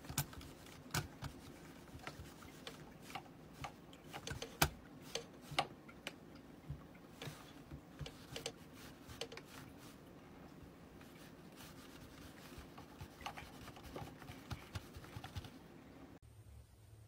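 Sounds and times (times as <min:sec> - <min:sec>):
computer mouse clicks and taps: 0:00.0 - 0:09.6, 0:12.8 - 0:15.6.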